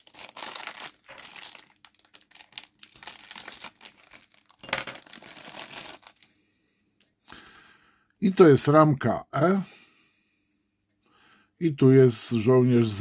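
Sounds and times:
plastic bag crinkling: 0:00.0 - 0:06.3.

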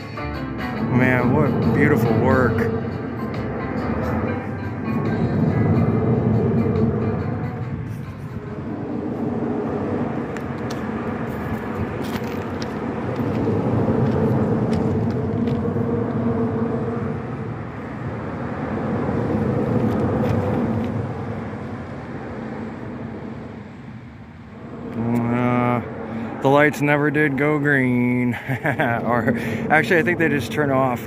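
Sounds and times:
motor vehicles passing: 0:00.0 - 0:31.0.

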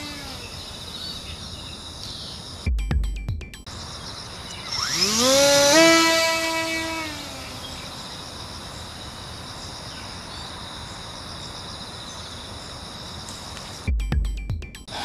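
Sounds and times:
electric motor and propeller whine: 0:00.0 - 0:01.2, 0:04.0 - 0:08.5
insects chirring: 0:00.0 - 0:02.7, 0:03.5 - 0:13.9.

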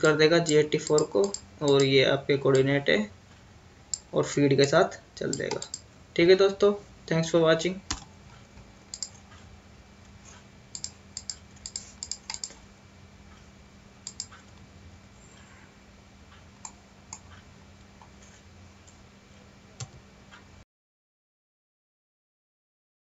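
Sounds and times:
keyboard and mouse clicking: 0:00.0 - 0:01.9, 0:05.3 - 0:05.8, 0:07.9 - 0:08.1, 0:08.9 - 0:09.3, 0:10.7 - 0:12.6, 0:14.0 - 0:14.6, 0:16.6 - 0:17.4
faint low hum: 0:00.0 - 0:20.6.

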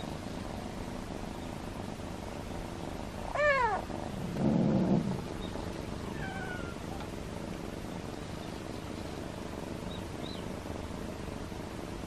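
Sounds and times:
low rough noise: 0:00.0 - 0:12.0
cat meowing: 0:03.3 - 0:03.9, 0:06.1 - 0:06.9.

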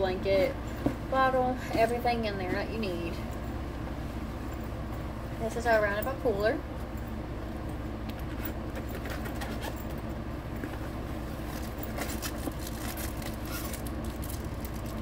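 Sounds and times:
air conditioner humming: 0:00.0 - 0:15.0
fabric bag rustling and scraping: 0:08.2 - 0:10.1, 0:10.8 - 0:15.0.

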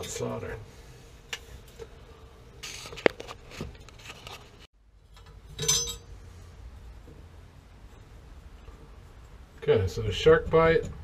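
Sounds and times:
scraping rustle: 0:02.6 - 0:04.7.

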